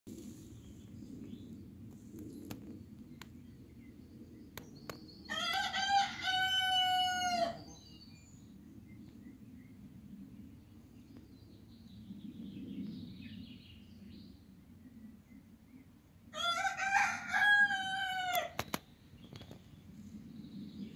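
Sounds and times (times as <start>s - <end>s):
rooster crowing: 5.3s - 7.7s, 16.3s - 18.6s.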